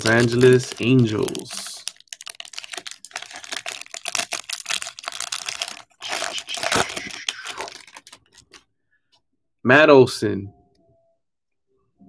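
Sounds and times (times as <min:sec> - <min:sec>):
trading cards clicking and rustling: 0:00.0 - 0:08.6.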